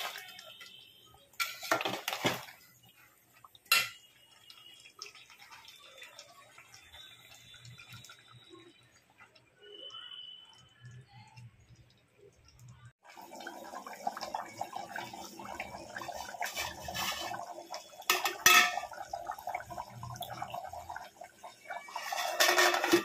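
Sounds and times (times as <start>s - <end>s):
gravy bubbling and popping: 0.0s - 23.0s
metal lid clinking on pot: 3.7s - 4.0s, 18.1s - 19.1s, 21.9s - 23.0s.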